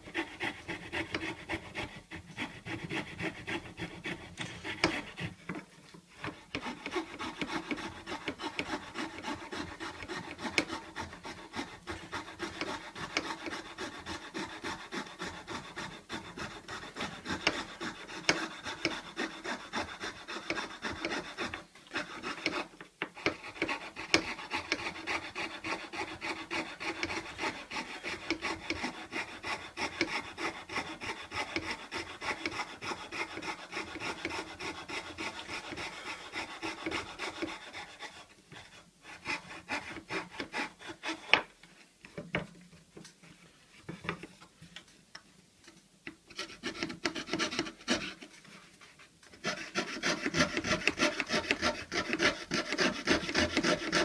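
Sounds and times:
fretsaw cutting wood: 0.1 - 5.3, 6.2 - 38.2, 49.3 - 54.0.

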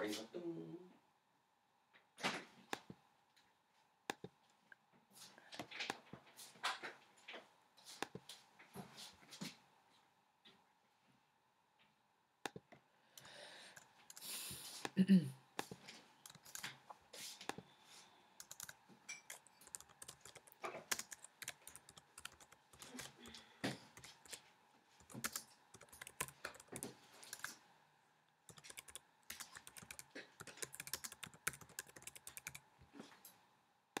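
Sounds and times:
typing on computer keyboard: 15.6 - 16.8, 18.4 - 24.4, 25.0 - 27.6, 28.5 - 32.7.

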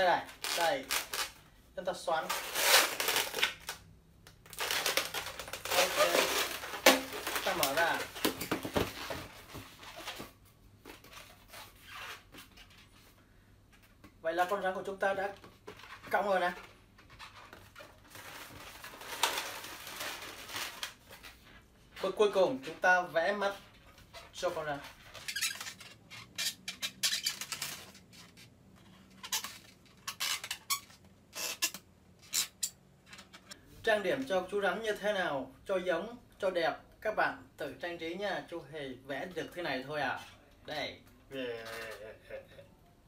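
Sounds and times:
latex balloons rubbing: 4.6 - 8.1
marker squeaking on balloon: 5.6 - 8.0, 11.4 - 12.8, 24.1 - 32.8.

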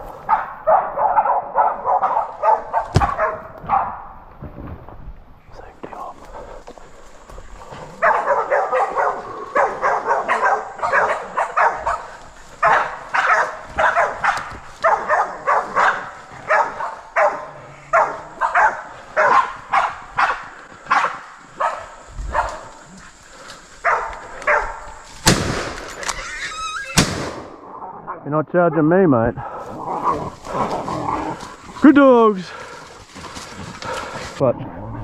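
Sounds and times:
dogs barking: 0.0 - 4.2, 7.7 - 25.0
loud gunshot: 25.2 - 25.9, 27.0 - 27.6.

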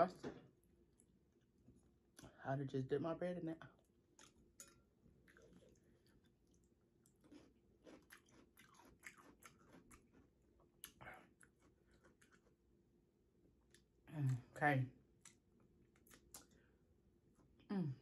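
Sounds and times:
faint wet chewing: 3.7 - 12.8, 13.5 - 14.5, 15.1 - 17.7
pickle crunching: 3.8 - 12.7, 15.2 - 16.6.

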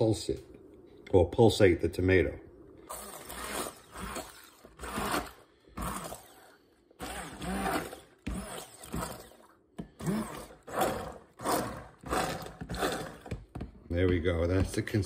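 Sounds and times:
immersion blender pulsing: 2.9 - 13.6.

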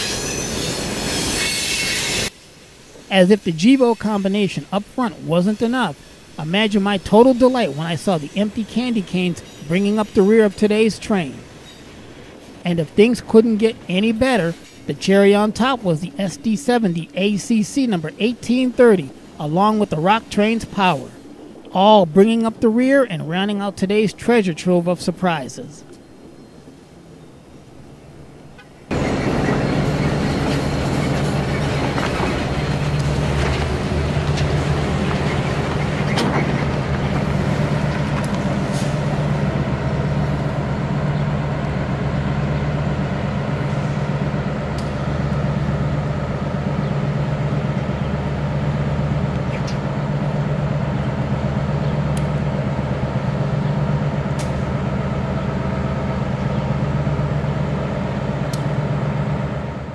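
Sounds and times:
diesel engine idling: 28.9 - 59.9.

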